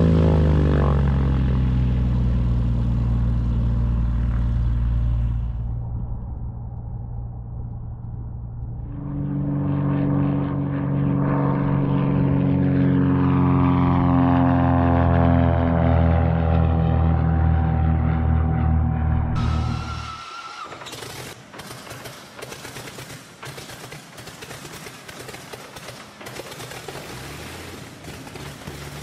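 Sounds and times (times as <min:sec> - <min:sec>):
loud high propeller engine note: 0:00.0 - 0:20.0
plane propeller engine running: 0:00.0 - 0:29.0.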